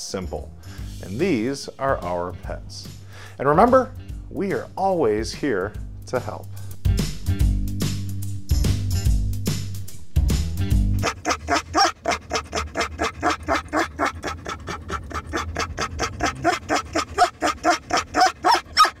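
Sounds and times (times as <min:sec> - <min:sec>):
dog panting: 0:11.0 - 0:19.0.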